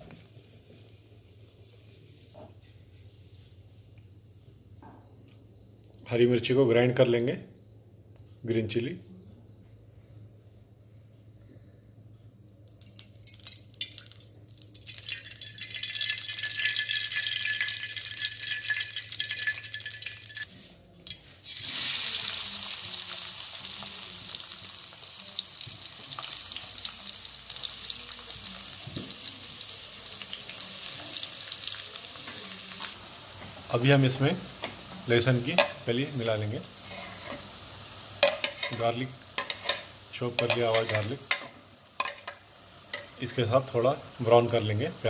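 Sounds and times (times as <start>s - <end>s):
onions sizzling in hot oil: 12.9s - 20.5s, 21.4s - 45.0s.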